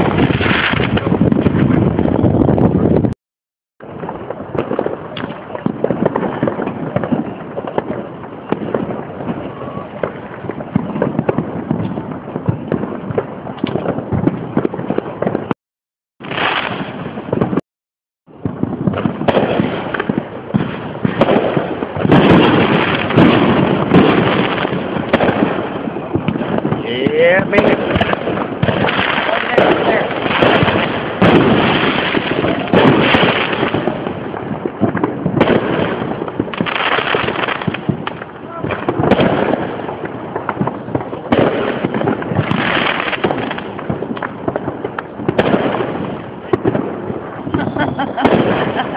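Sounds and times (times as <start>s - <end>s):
fireworks pops and bangs: 0.0s - 3.2s, 3.8s - 15.6s, 16.2s - 17.6s, 18.3s - 48.9s
hissing crackle: 18.5s - 48.9s.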